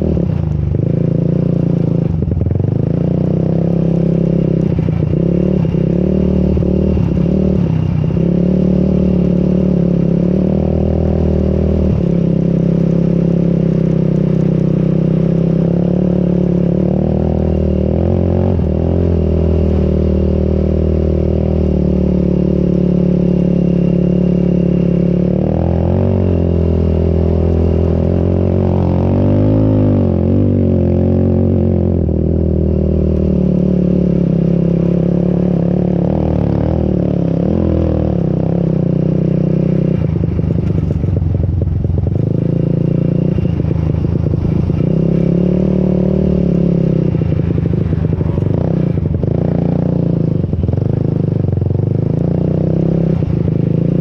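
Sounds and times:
atv engine revving in sand: 0:14.5 - 0:40.9, 0:42.0 - 0:54.0.

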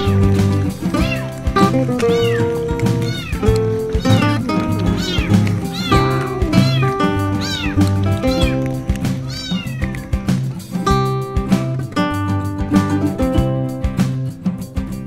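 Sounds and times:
cats meowing: 0:00.0 - 0:10.5
background music with steady beat: 0:00.0 - 0:15.0.

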